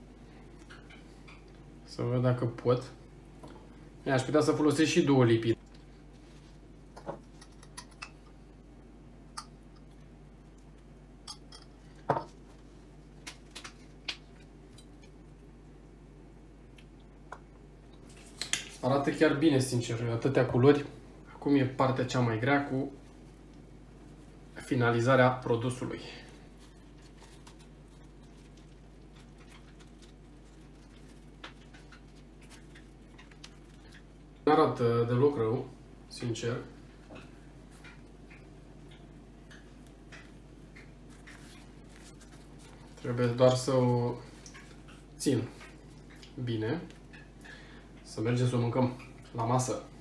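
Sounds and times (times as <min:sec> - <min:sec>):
steady low hum: 0:00.0 - 0:50.0
flatbread wrap rustling: 0:22.9 - 0:34.5, 0:39.5 - 0:47.4.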